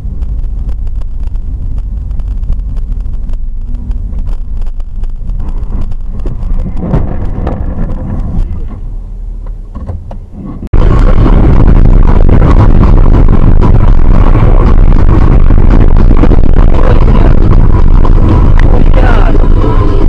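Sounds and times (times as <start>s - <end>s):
wind on microphone: 0.0s - 9.0s, 10.4s - 20.0s
vehicle road rumble: 0.0s - 20.0s.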